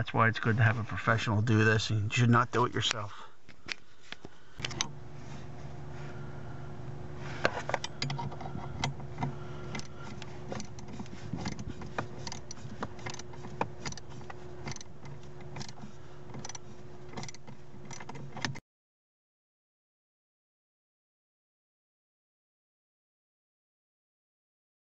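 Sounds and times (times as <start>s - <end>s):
steady low hum: 0.0s - 18.6s
clicks and knocks of tools: 7.4s - 18.6s.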